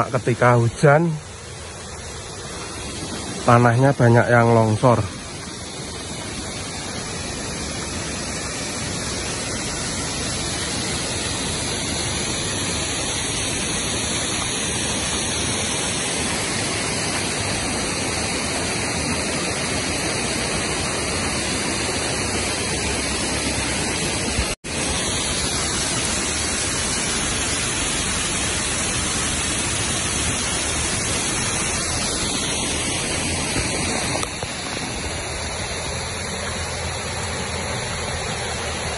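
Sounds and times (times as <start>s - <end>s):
river and waterfall rushing: 0.0s - 38.9s.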